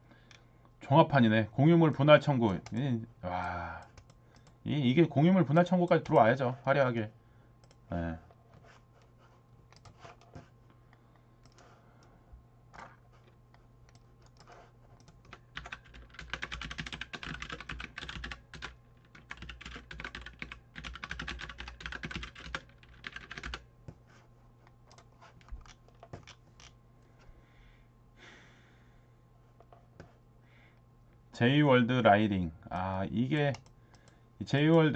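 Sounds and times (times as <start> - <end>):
low steady hum: 0.0 - 34.9
computer keyboard typing: 3.4 - 4.6, 9.7 - 10.5, 11.4 - 11.8, 13.9 - 23.7, 24.9 - 26.8.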